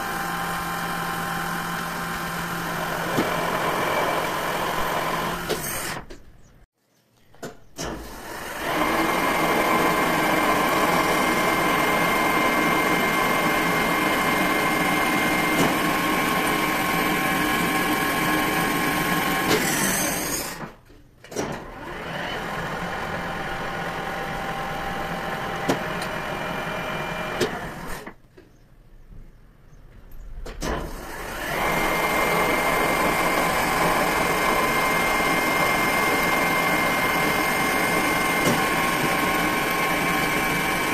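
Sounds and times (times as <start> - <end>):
metal lathe whining: 8.1 - 20.6, 31.0 - 40.9.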